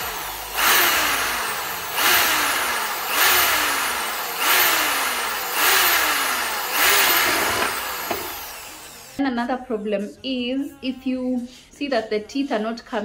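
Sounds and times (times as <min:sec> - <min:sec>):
hammer drill boring into wood: 0:00.0 - 0:09.2.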